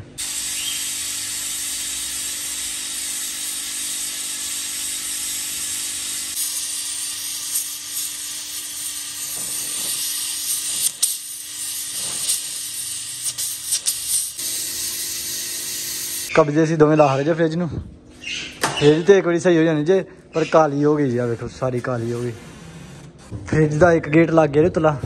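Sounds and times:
welding torch hissing: 0:00.0 - 0:16.3.

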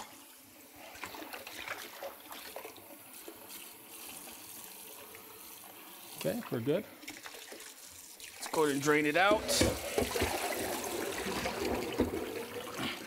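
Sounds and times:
faucet running water: 0:00.0 - 0:13.0
small water splashes: 0:00.7 - 0:13.0.

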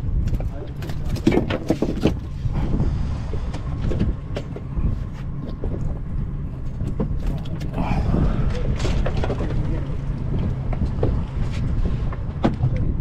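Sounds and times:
boat engine rumbling: 0:00.0 - 0:13.0
knocks and clatter on board: 0:00.2 - 0:02.4, 0:08.8 - 0:13.0.

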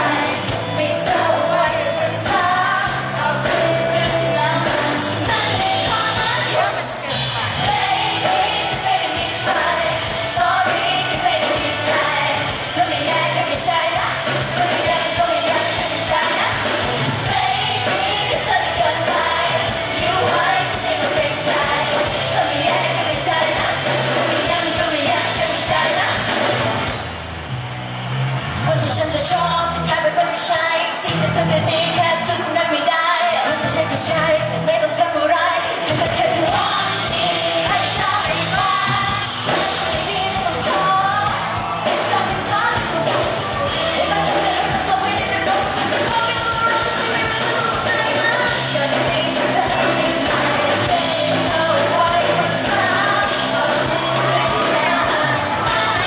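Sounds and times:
woman singing: 0:00.0 - 0:26.5, 0:28.6 - 0:56.0
pop music beat and bass: 0:00.0 - 0:27.2, 0:28.6 - 0:56.0.

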